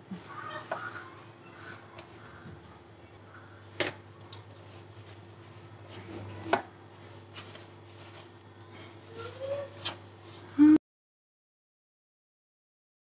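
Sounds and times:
soft rubbing of dough: 0:00.0 - 0:03.8, 0:04.6 - 0:10.6.

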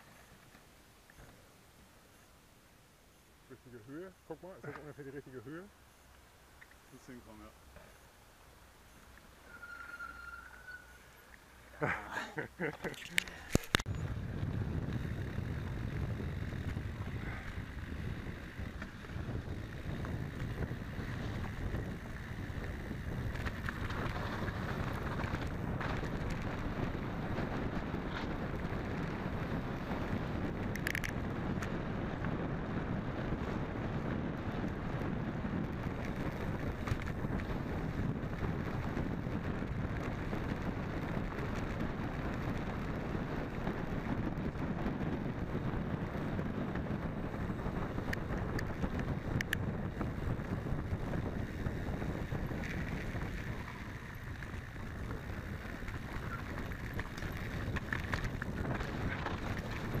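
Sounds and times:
bike tyres rattling on rough ground: 0:09.2 - 1:00.0
wind rushing over microphone: 0:11.8 - 1:00.0.

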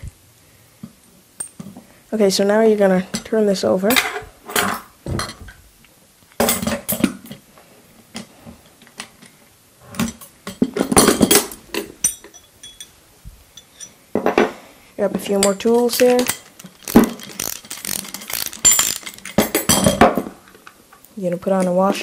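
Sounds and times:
metal tubes clattering on wood: 0:10.0 - 0:13.0, 0:15.2 - 0:20.6
faint metallic ring: 0:12.0 - 0:14.0.

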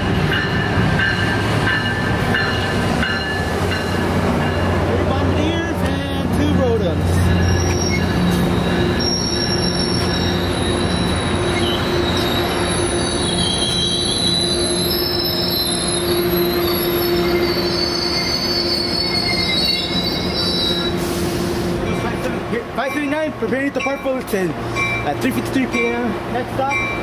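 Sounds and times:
train cars rumbling past: 0:00.0 - 0:27.0
steel wheels squealing on rails: 0:05.5 - 0:23.2.

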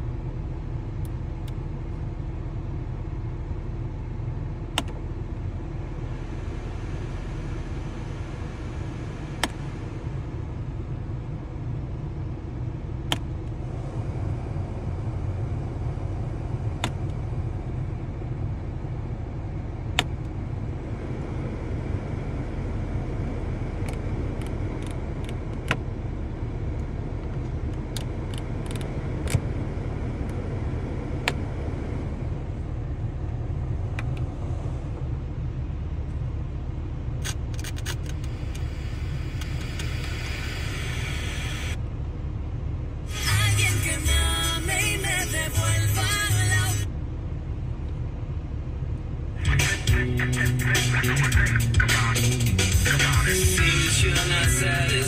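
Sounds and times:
car engine idling: 0:00.0 - 0:55.0
climate control blower air rush: 0:37.3 - 0:41.8.

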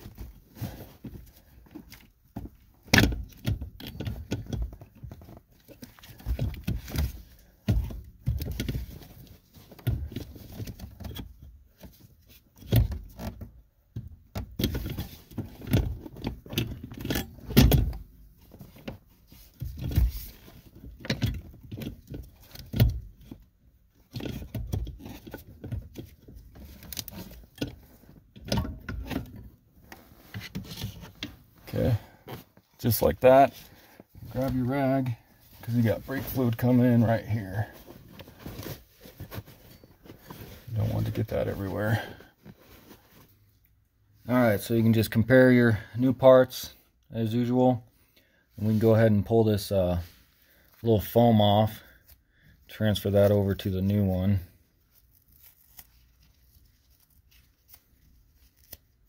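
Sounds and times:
knocks and rattles under dashboard: 0:00.0 - 0:29.6.

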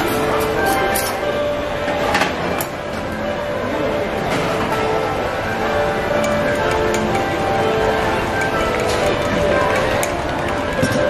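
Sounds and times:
background music: 0:00.0 - 0:11.0
drink counter clatter: 0:08.4 - 0:11.0.

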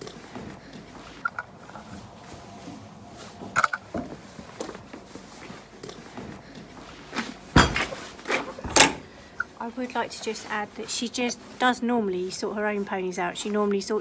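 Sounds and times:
rug rustling: 0:00.0 - 0:14.0
strap buckles clinking: 0:07.2 - 0:09.5.

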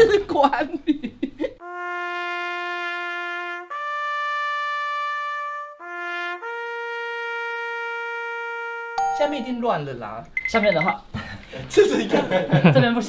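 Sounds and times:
solo trumpet playing slow tune: 0:01.6 - 0:09.0.

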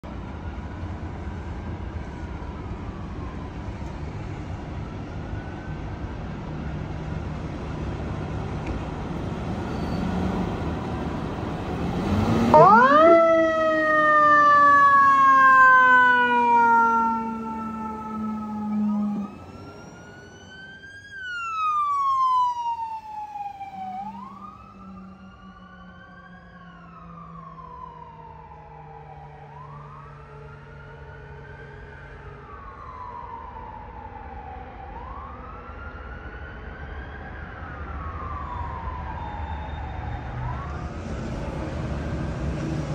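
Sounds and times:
fire engine diesel rumbling: 0:00.0 - 0:33.2, 0:37.3 - 0:42.9
emergency siren wails: 0:00.0 - 0:42.9
mechanical siren wail: 0:12.3 - 0:41.0.

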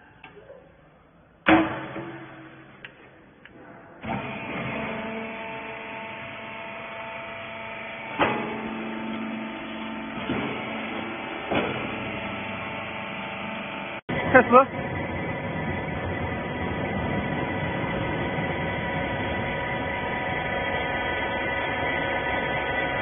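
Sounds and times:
loud metal clank: 0:01.5 - 0:02.8
baler motor and pump humming: 0:04.0 - 0:23.0.

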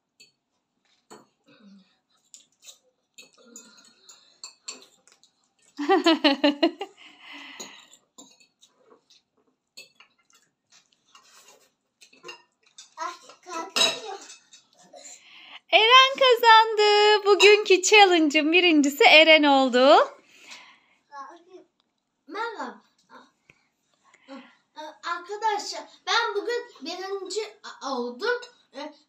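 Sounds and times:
forks clinking against bowls: 0:02.4 - 0:05.1, 0:07.6 - 0:08.7, 0:09.8 - 0:10.5, 0:12.0 - 0:14.8.

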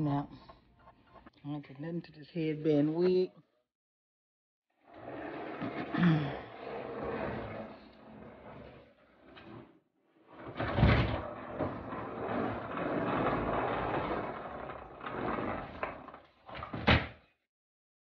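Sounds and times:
tote scraping across floor: 0:04.8 - 0:09.7, 0:10.3 - 0:16.6.

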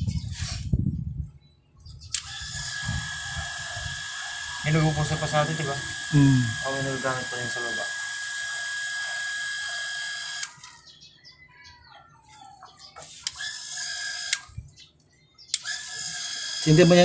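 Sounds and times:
sharp clicks: 0:02.1 - 0:02.6, 0:13.2 - 0:15.9
water pump whining: 0:02.2 - 0:10.8, 0:13.3 - 0:14.6, 0:15.5 - 0:17.0.

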